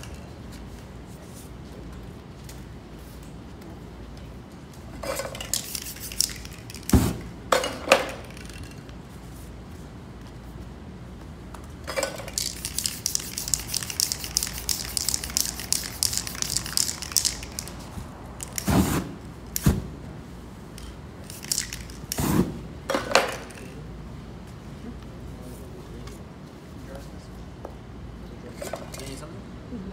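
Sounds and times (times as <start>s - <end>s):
spray paint can hissing: 5.2s - 7.3s, 12.2s - 19.7s, 21.2s - 22.5s.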